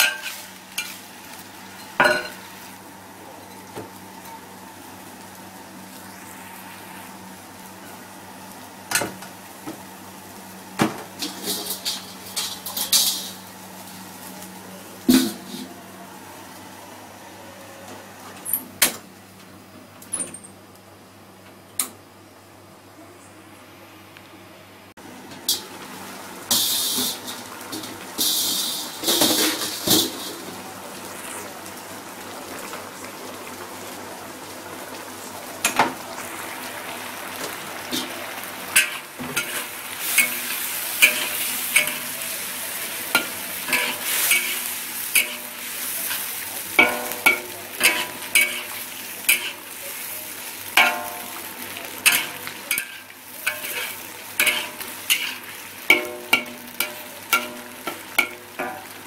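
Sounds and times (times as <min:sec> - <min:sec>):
stew sizzling in a wok: 0:00.0 - 0:18.3, 0:25.0 - 0:59.0
metal spatula scraping a pan: 0:38.8 - 0:49.6, 0:52.0 - 0:58.4.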